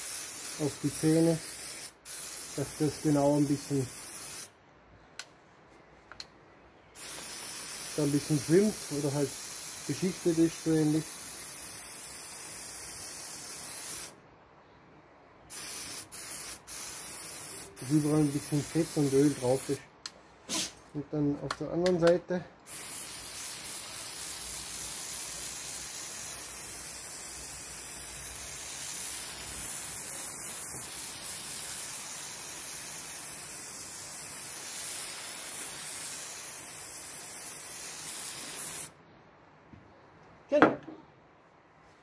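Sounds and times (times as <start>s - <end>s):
aerosol spray hissing: 0.0s - 4.5s, 7.0s - 14.2s, 15.5s - 19.8s, 22.7s - 38.9s.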